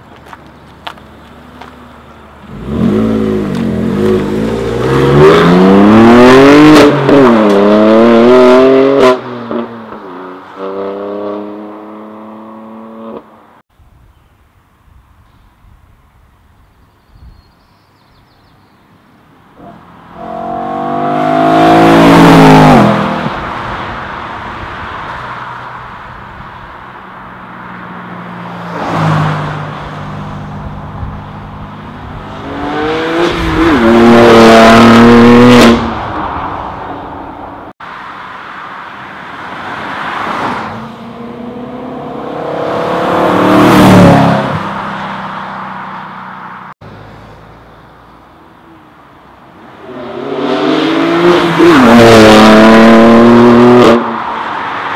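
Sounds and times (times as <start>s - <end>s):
cars driving past: 0.2s - 13.6s, 19.6s - 54.9s
car engine accelerating hard: 2.4s - 9.6s, 19.6s - 23.4s, 32.0s - 35.9s, 40.3s - 44.9s, 49.9s - 54.2s.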